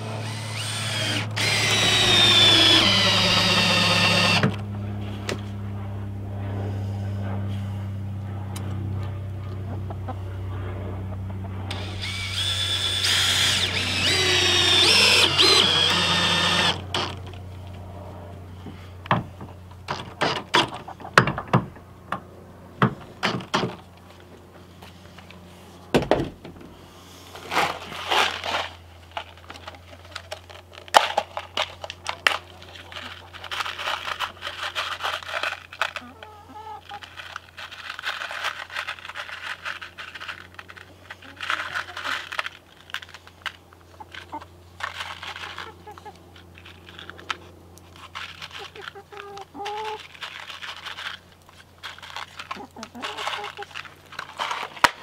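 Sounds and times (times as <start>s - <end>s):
cordless drill whirring: 0.0s - 4.6s, 11.7s - 17.2s
rustling: 11.7s - 17.9s, 27.0s - 55.0s.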